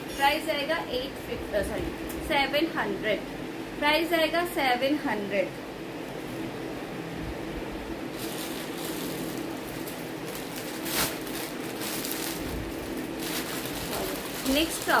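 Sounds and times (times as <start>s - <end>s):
cloth rustling and crinkling: 8.1s - 15.0s.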